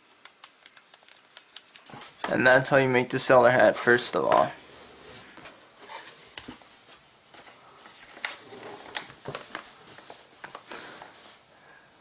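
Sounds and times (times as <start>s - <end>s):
paper rustling: 5.1s - 11.4s.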